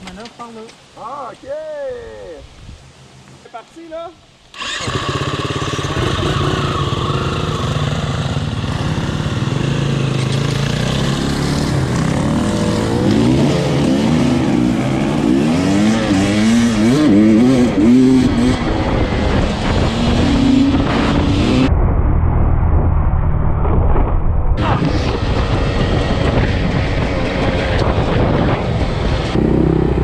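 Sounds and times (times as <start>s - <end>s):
two-stroke motorbike engine revving: 4.5s - 21.7s, 24.6s - 30.0s.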